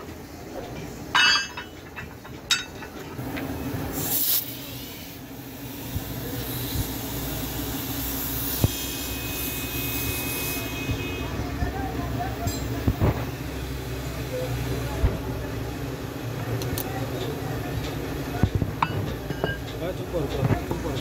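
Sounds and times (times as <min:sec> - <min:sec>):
metal clink: 0:01.2 - 0:03.0, 0:18.8 - 0:19.8
compressed air hissing: 0:03.9 - 0:10.8.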